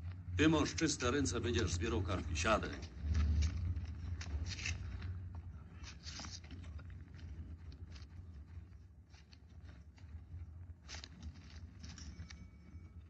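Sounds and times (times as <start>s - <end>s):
low steady hum: 0.0s - 13.0s
paper rustling and scratching: 2.6s - 12.6s.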